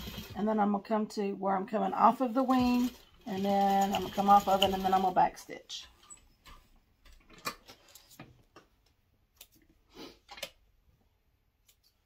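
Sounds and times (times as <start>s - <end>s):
sewing machine clicks: 2.7s - 5.1s.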